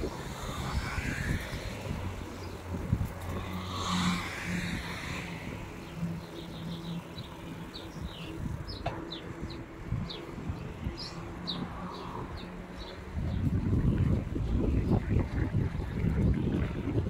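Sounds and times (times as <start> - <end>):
car passing: 0.0 - 13.4
wind rumble on microphone: 0.0 - 17.0
small birds chirping: 4.7 - 13.5.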